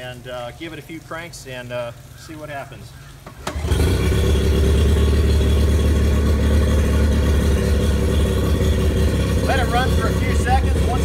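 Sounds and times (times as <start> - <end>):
outboard motor running: 3.3 - 11.0.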